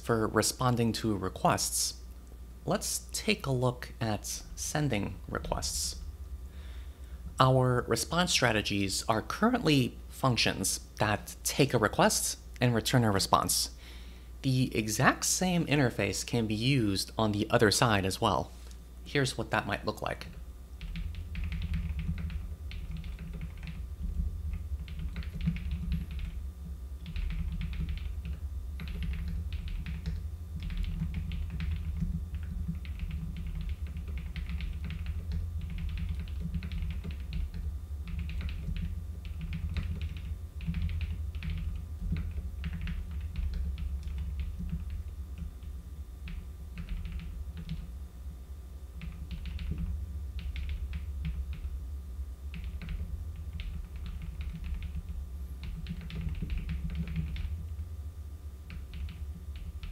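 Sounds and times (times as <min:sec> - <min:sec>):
steady low hum: 0:00.0 - 0:59.9
computer keyboard typing: 0:20.2 - 0:26.4, 0:27.0 - 0:47.9, 0:49.0 - 0:51.7, 0:52.5 - 0:57.6, 0:58.6 - 0:59.9.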